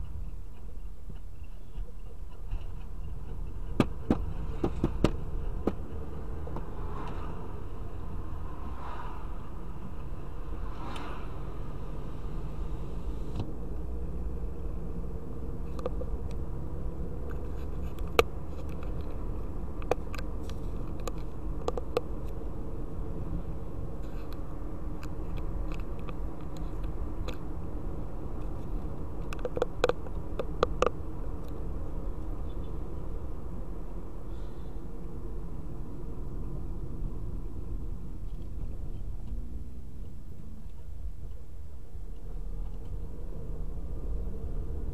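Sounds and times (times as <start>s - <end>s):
car engine and tyre rumble: 0.0s - 44.9s
sharp clicks and rattles: 28.4s - 31.6s.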